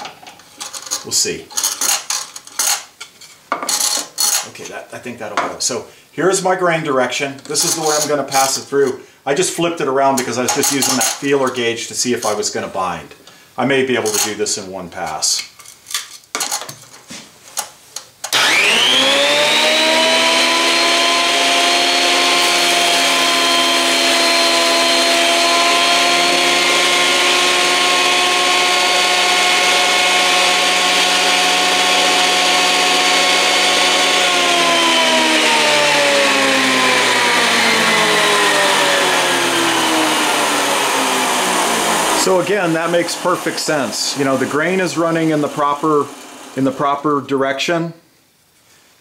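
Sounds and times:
thickness planer whine: 0:18.3 - 0:47.0.

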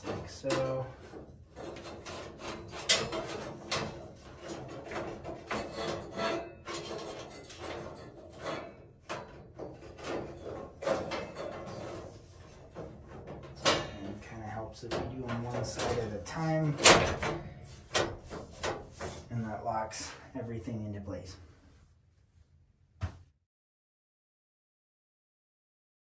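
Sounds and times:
metal cage scraping and rubbing: 0:00.0 - 0:20.1.

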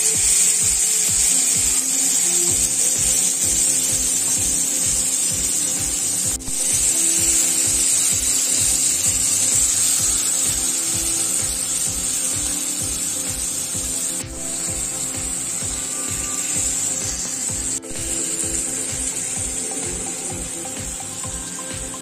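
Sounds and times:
background music with steady beat: 0:00.0 - 0:22.0
chicken sizzling on grill pan: 0:00.0 - 0:22.0.

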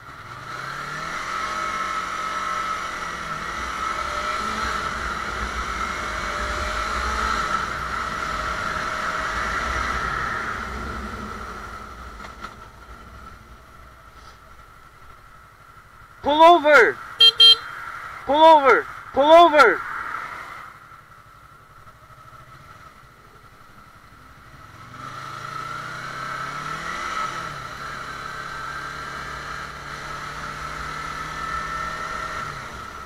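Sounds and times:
motorcycle engine accelerating: 0:00.0 - 0:15.2, 0:21.6 - 0:33.0
low wind rumble: 0:03.8 - 0:16.1.

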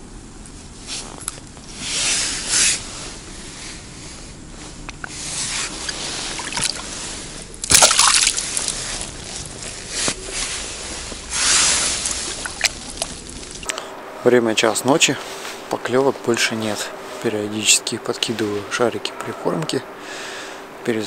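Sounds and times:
water sloshing and streaming: 0:05.4 - 0:13.9
sharp water splash: 0:05.8 - 0:06.8, 0:07.6 - 0:09.0, 0:11.5 - 0:13.7.

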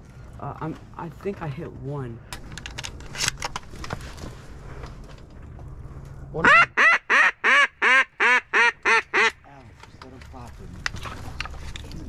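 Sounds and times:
duck call quacks: 0:06.4 - 0:09.4.

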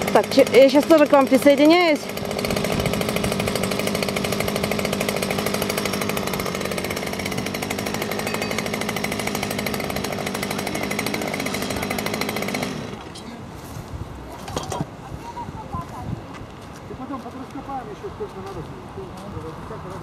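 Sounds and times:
small engine running steadily: 0:00.0 - 0:13.4.

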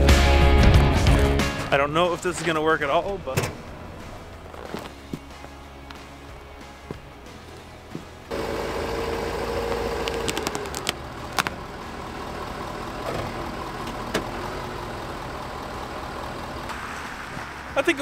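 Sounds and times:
diesel truck engine running: 0:00.0 - 0:17.8
sharp clicks: 0:10.1 - 0:11.5.

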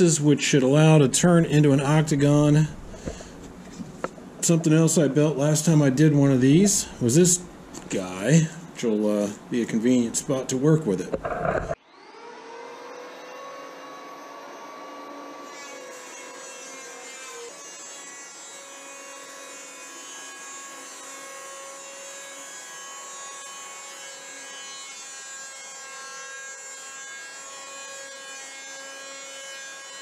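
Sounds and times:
electric planer motor whining: 0:11.2 - 0:26.0.

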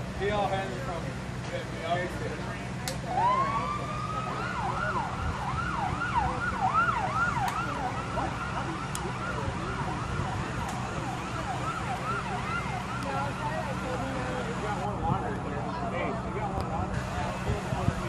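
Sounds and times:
emergency siren yelping: 0:03.0 - 0:14.8.

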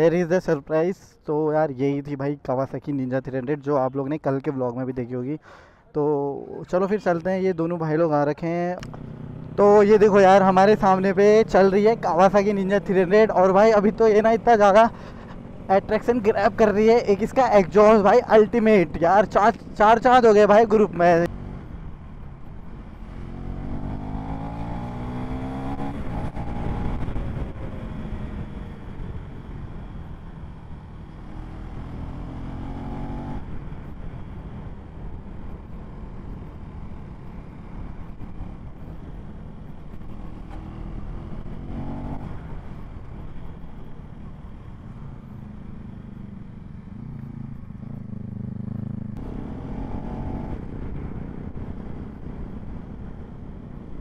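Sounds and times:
wind: 0:00.0 - 0:54.0
motorcycle engines revving: 0:08.4 - 0:54.0.

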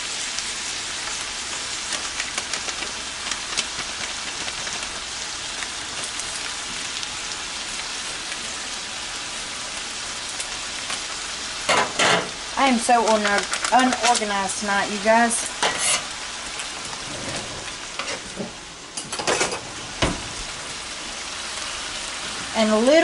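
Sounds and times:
meat and beans sizzling: 0:00.0 - 0:23.0
crackling pops: 0:01.8 - 0:06.3.

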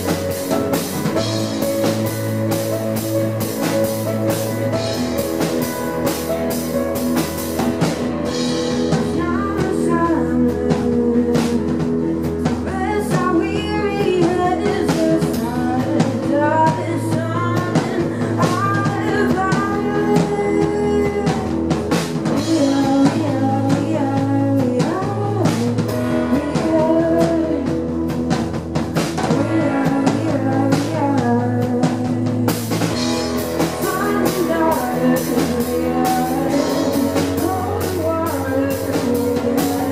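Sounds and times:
keyboard and drums: 0:00.0 - 0:39.9
low bass notes: 0:00.0 - 0:39.9
woman singing: 0:08.2 - 0:39.9.

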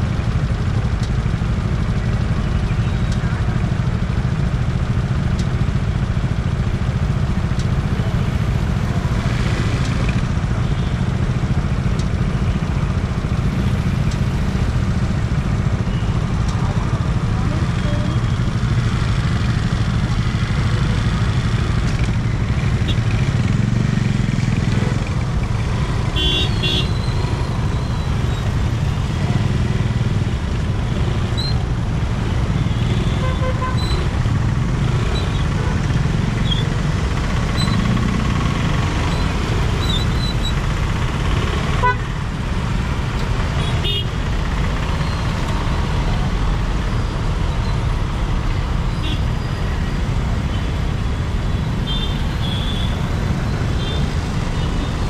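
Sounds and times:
traffic rumble: 0:00.0 - 0:55.0
vehicle horn toots: 0:26.2 - 0:27.1, 0:41.8 - 0:42.1, 0:43.6 - 0:44.1.

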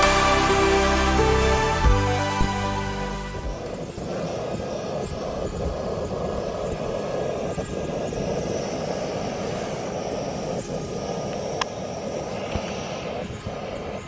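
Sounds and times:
camping stove burner running: 0:03.6 - 0:14.0.

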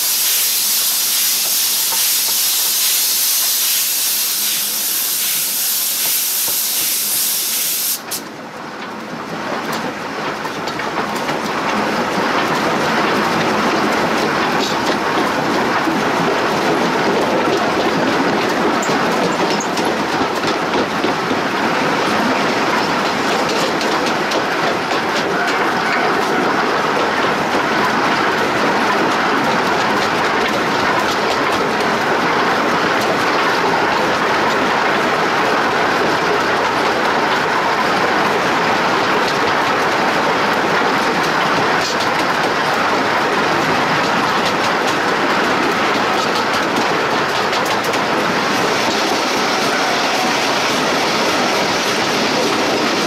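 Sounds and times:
steam hissing: 0:00.0 - 0:08.2, 0:48.4 - 0:53.0
locomotive wheels rolling on rails: 0:00.0 - 0:53.0
rods and wheels clattering: 0:34.9 - 0:53.0.

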